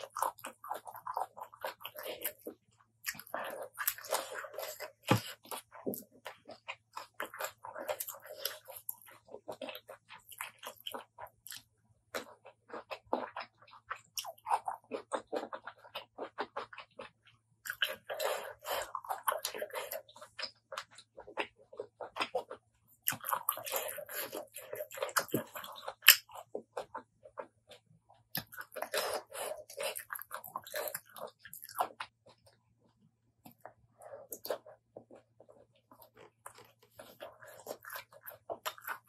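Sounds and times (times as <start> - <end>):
wet chewing: 0.0 - 39.0.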